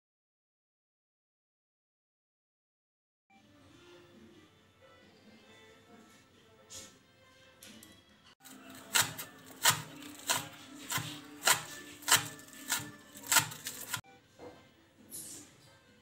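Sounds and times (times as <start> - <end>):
knife chopping on wooden board: 8.5 - 14.0.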